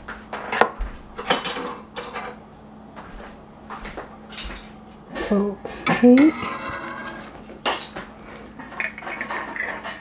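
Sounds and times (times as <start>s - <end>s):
glass jars clinking: 7.6s - 8.0s.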